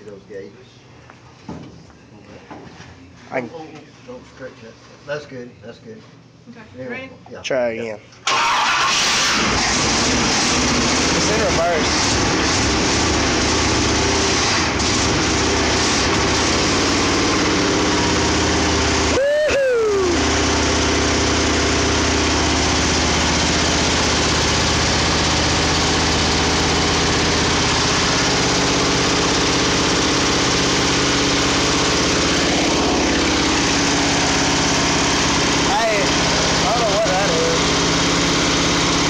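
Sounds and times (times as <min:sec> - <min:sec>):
truck engine idling: 0:19.9 - 0:39.0.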